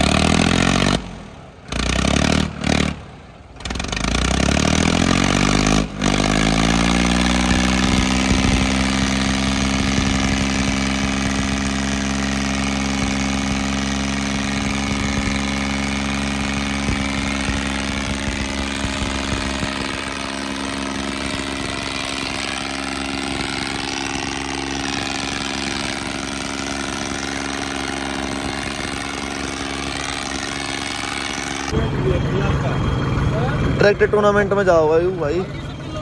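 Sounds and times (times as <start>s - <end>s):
tractor diesel engine idling: 7.3s - 36.0s.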